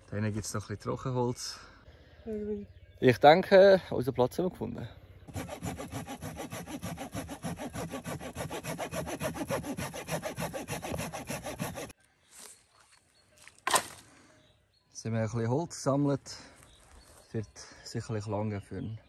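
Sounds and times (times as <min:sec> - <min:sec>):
hand saw cutting wood: 0:05.3 - 0:11.9.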